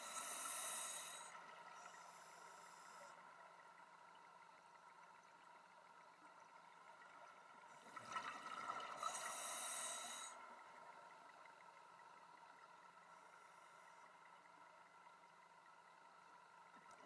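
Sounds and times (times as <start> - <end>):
regulator air hiss: 0.0 - 3.2, 9.0 - 10.4.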